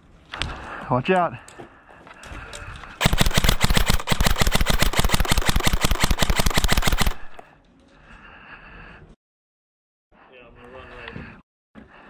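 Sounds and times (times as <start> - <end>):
airsoft rifle full-auto burst: 3.0 - 7.4.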